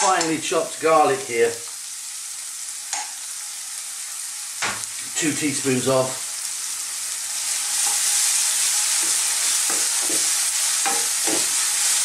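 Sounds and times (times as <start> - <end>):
onions sizzling in oil: 0.0 - 12.0
wooden spoon scraping a pan: 7.4 - 12.0.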